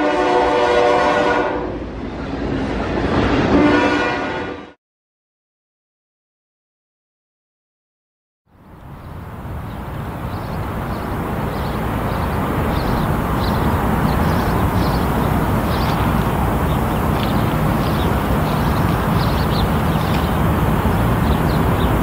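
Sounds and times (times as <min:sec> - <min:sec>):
diesel locomotive engine drone: 0:08.5 - 0:22.0.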